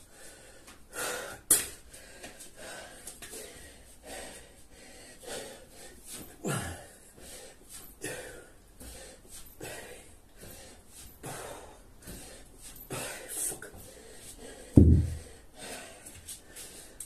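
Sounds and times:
man gasping breaths: 0:00.0 - 0:17.0
man grunting: 0:06.4 - 0:06.9.

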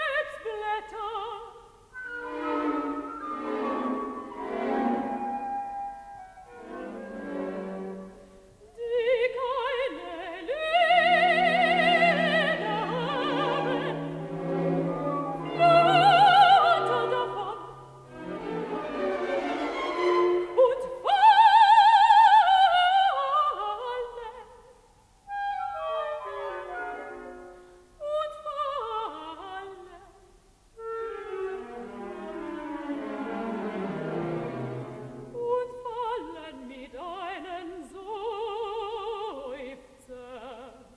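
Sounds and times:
woman singing with vibrato: 0:00.0 - 0:04.2, 0:08.6 - 0:19.0, 0:20.4 - 0:27.2, 0:28.0 - 0:31.7, 0:35.3 - 0:40.9
classical orchestra: 0:00.0 - 0:24.4, 0:25.3 - 0:30.0, 0:30.8 - 0:39.7.

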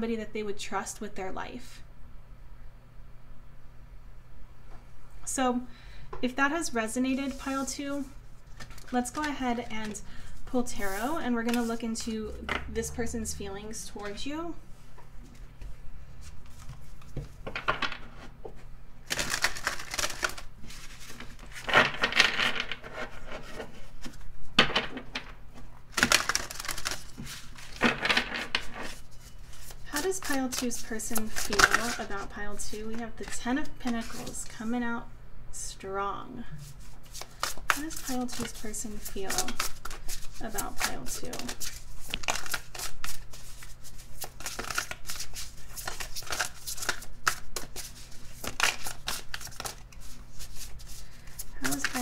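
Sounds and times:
cards being shuffled: 0:07.1 - 0:10.0, 0:10.7 - 0:11.9, 0:16.2 - 0:24.3, 0:25.9 - 0:34.5, 0:36.7 - 0:52.0.

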